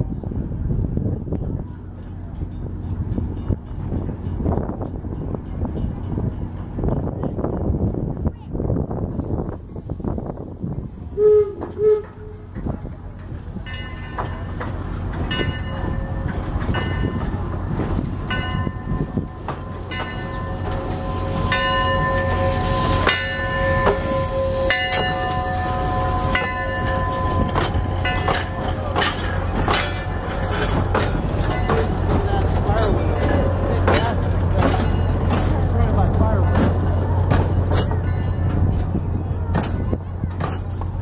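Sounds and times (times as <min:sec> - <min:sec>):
low train rumble: 0:00.0 - 0:41.0
steam whistle toots: 0:11.2 - 0:12.5, 0:20.9 - 0:28.0
locomotive bell ringing: 0:13.6 - 0:41.0.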